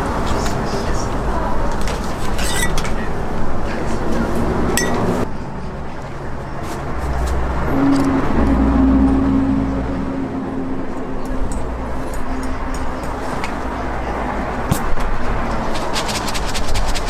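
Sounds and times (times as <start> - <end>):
metal spatulas clinking and scraping: 2.2 - 3.0.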